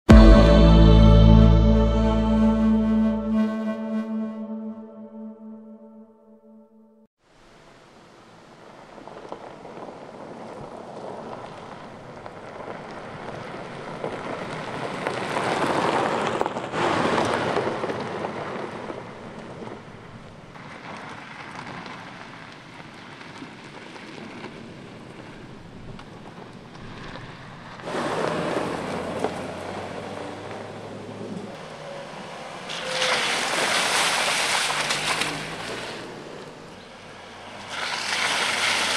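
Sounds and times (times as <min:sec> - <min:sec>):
tyres crunching on gravel: 0:09.0 - 0:30.6.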